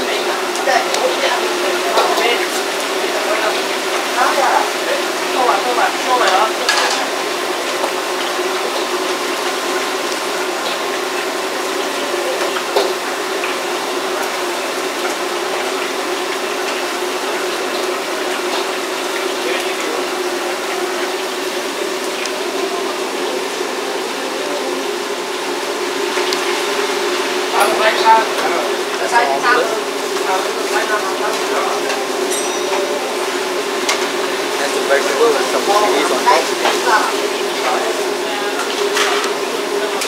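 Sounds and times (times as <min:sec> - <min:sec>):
food sizzling in a wok: 0:00.0 - 0:40.0.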